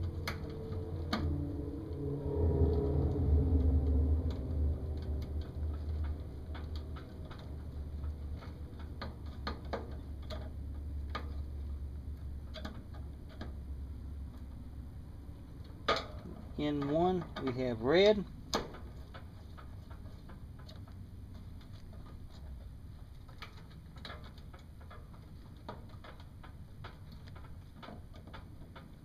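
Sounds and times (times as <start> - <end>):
low rumble: 0.0 - 22.9.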